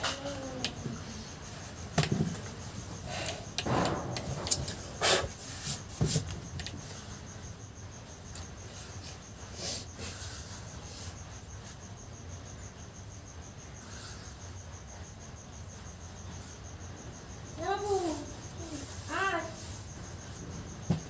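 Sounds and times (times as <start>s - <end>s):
crickets chirping: 0.0s - 21.0s.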